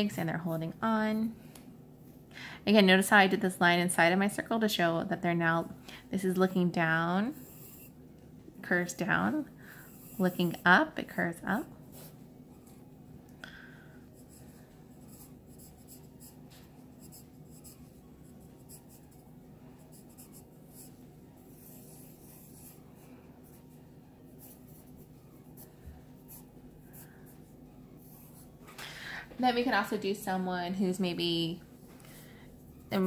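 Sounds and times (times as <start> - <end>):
low steady hum: 0.0 - 33.0
pencil sketching on paper: 6.2 - 12.8, 14.0 - 28.6.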